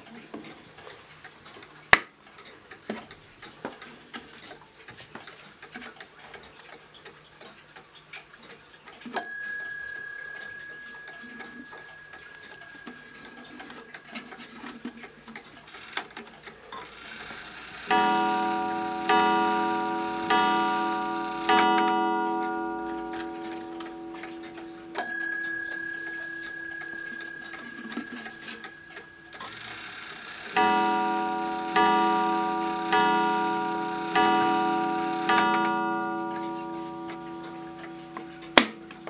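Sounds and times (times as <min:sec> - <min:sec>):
mantel clock ticking: 0:09.2 - 0:39.0
clock striking once: 0:17.9 - 0:39.0.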